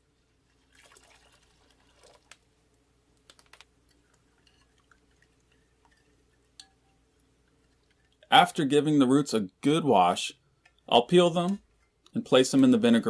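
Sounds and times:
liquid poured into a glass bowl: 0.5s - 2.4s, 3.9s - 8.2s
metal spoon stirring: 3.8s - 8.3s.

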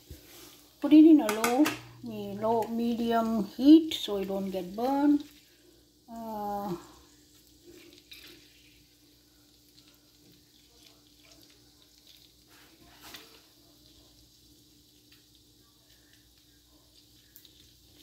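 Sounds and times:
oil sizzling and crackling: 0.0s - 18.0s.

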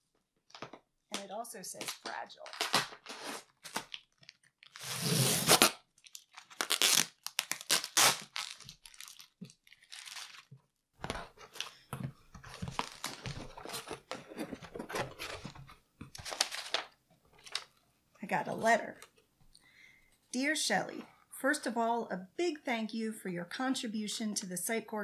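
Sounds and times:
packing tape ripping: 1.9s - 10.5s
cardboard and paper rustling: 8.4s - 17.7s.

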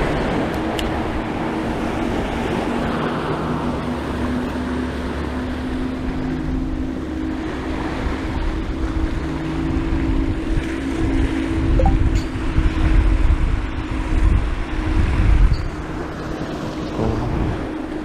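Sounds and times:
surf washing against rocks: 0.0s - 6.2s
steady engine drone: 0.0s - 18.0s
wind buffeting microphone: 0.0s - 18.0s.

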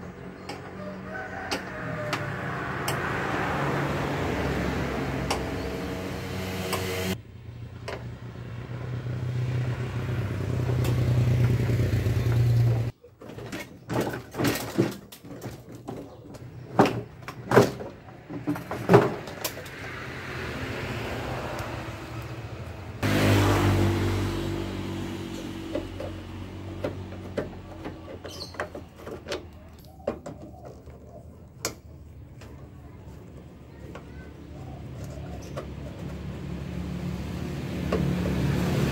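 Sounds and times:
engine drone: 2.2s - 12.9s, 20.0s - 28.4s.

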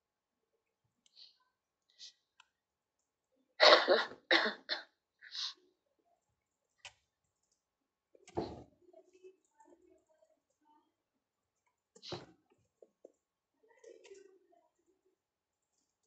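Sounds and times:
woman coughing: 3.6s - 4.9s.

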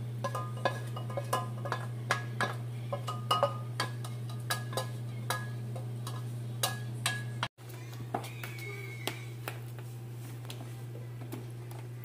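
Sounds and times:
utensil clinking on frying pan: 0.2s - 7.5s.

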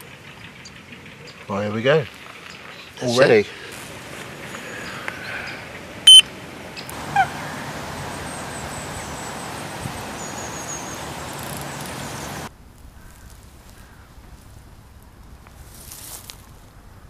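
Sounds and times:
downward gliding bird call: 5.5s - 6.2s, 7.0s - 12.5s
wind hiss: 6.4s - 12.5s.

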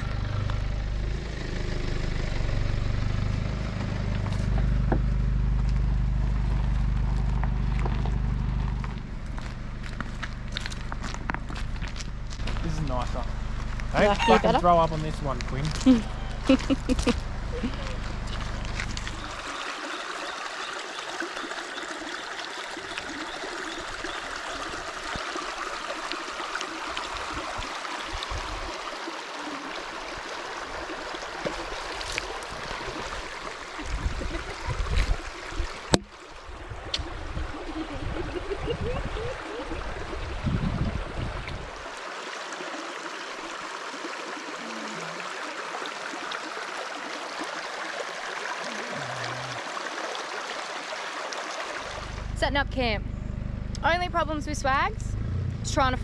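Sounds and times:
low rumbling: 0.0s - 19.5s, 31.6s - 41.9s, 51.9s - 56.0s
river flowing over rocks: 16.0s - 52.3s.

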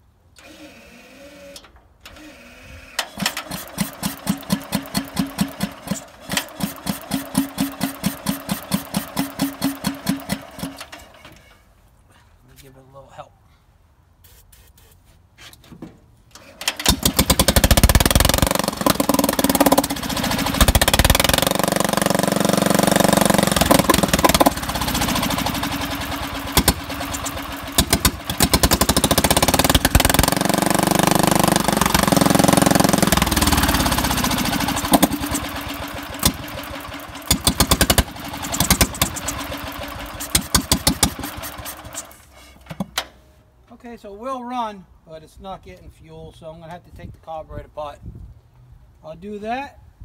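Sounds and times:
tractor engine running roughly: 3.2s - 11.1s, 16.7s - 42.3s.

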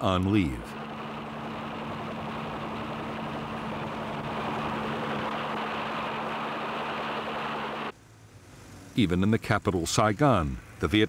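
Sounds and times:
helicopter engine drone: 0.0s - 7.9s.

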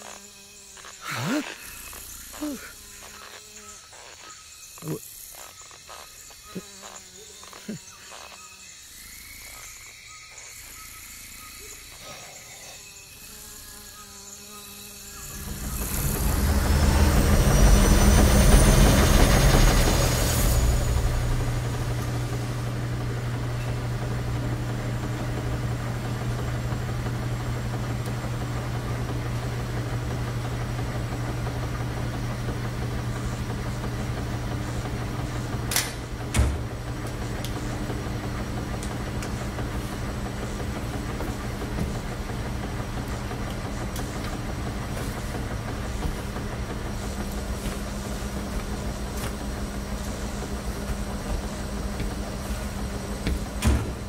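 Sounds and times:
loud whoosh with rising whine: 15.2s - 23.4s
washing machine drum humming: 15.3s - 54.0s.

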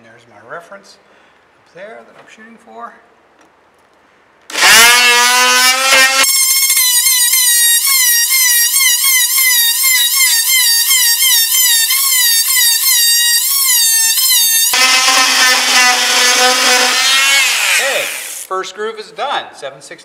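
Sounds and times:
oscillating multi-tool cutting wood: 4.5s - 18.5s.

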